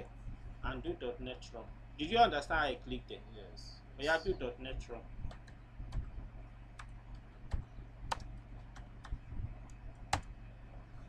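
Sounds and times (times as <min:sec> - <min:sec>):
computer keyboard typing: 0:05.3 - 0:06.1, 0:07.5 - 0:09.2.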